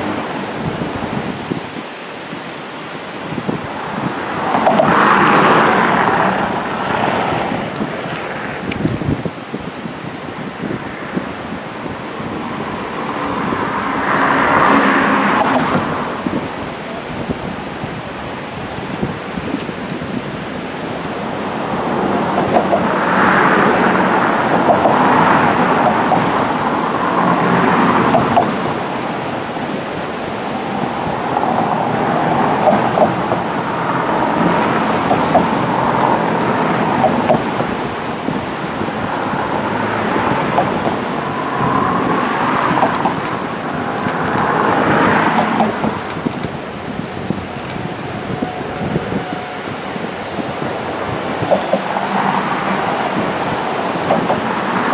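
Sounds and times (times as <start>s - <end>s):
ocean surf: 0.0s - 54.9s
wind: 0.0s - 54.9s
diesel locomotive: 12.1s - 54.9s
train approaching: 20.5s - 54.9s.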